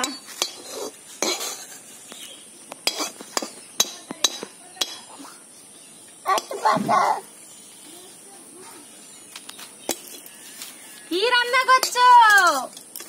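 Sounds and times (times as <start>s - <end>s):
spatula scraping wok: 0.3s - 2.0s.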